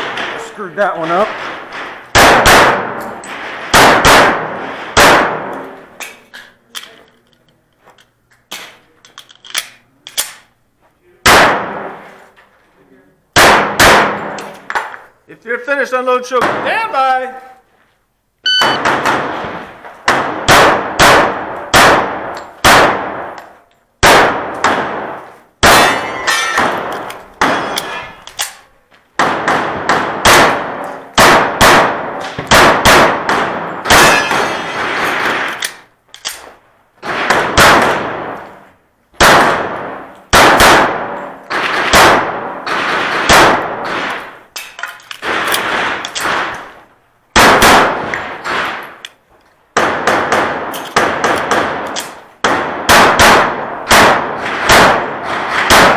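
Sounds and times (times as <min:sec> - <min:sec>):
pistol shots echoing: 0:00.0 - 0:05.8, 0:11.2 - 0:12.0, 0:13.3 - 0:14.8, 0:18.6 - 0:49.1, 0:49.7 - 0:55.9.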